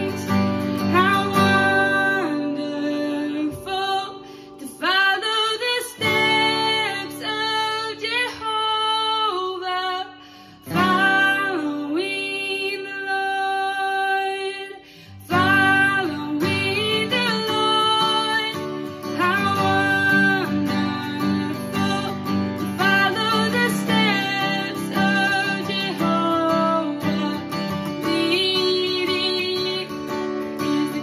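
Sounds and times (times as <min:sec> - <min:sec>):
strummed acoustic guitar: 0:00.0 - 0:31.0
woman singing: 0:00.0 - 0:31.0
singer breathing: 0:04.2 - 0:04.6, 0:10.2 - 0:10.7, 0:14.8 - 0:15.2.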